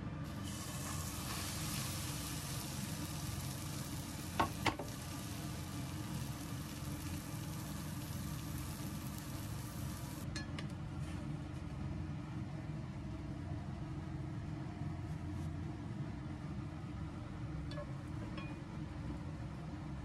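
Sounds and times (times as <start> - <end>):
bread sizzling in a frying pan: 0.3 - 10.2.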